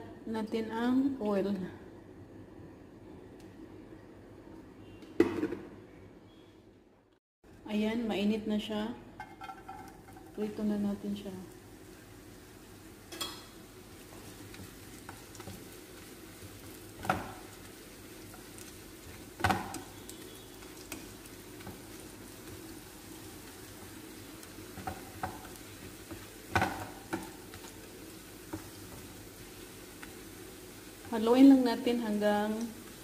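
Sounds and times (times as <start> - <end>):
flatbread sizzling in oil: 9.2 - 33.0.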